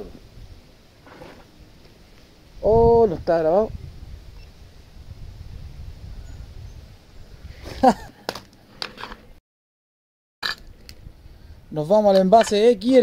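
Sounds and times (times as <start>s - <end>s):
wind rumbling on microphone: 0.0s - 8.0s, 10.6s - 13.0s.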